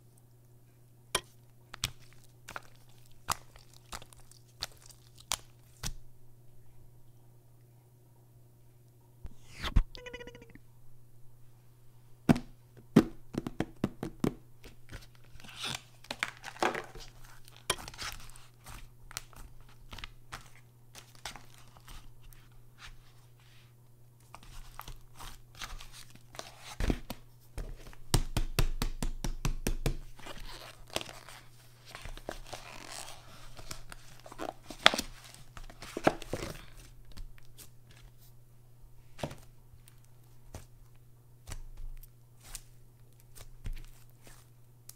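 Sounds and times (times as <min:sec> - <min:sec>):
slime crinkling and crunching: 0:01.8 - 0:05.9.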